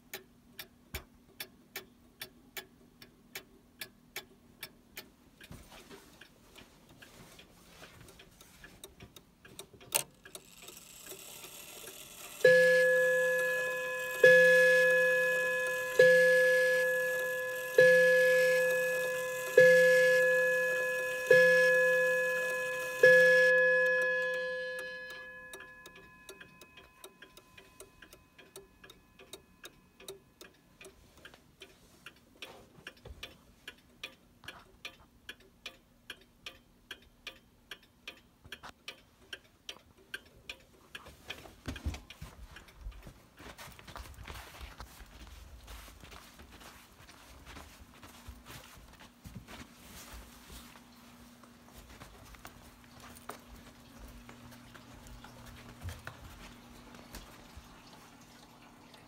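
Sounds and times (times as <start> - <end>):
clock ticking: 0.0 - 59.0
clock striking: 9.5 - 30.2.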